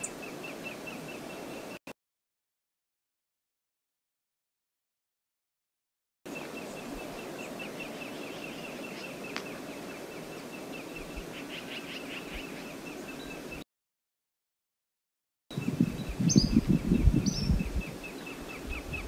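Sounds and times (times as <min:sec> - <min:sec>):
small birds chirping: 0:00.0 - 0:01.8, 0:06.3 - 0:13.6, 0:15.5 - 0:19.0.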